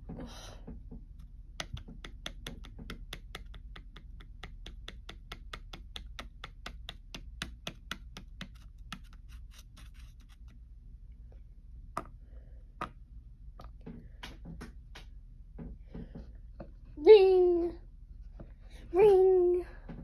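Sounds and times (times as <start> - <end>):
toy tapping on toy desk: 1.6 - 9.1.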